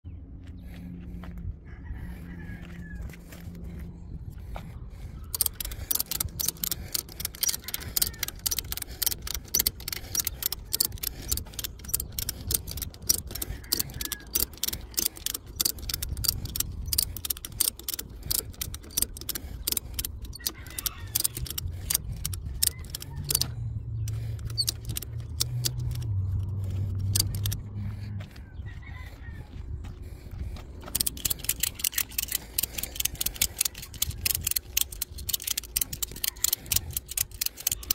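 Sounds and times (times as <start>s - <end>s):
ratchet strap clicking: 5.3s - 27.7s, 30.8s - 37.9s.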